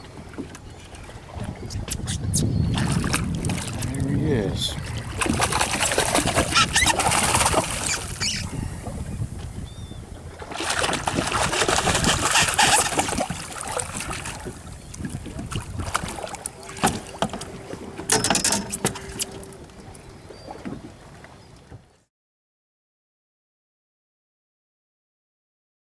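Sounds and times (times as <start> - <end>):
fish splashing in water: 4.9 - 8.6, 10.4 - 17.5.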